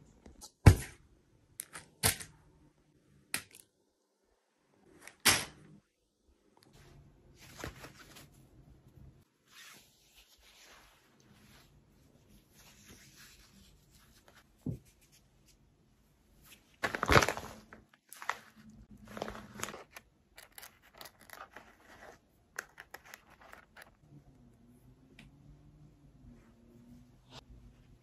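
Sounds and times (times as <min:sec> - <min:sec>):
plastic packaging rustling and tearing: 0:16.8 - 0:22.1.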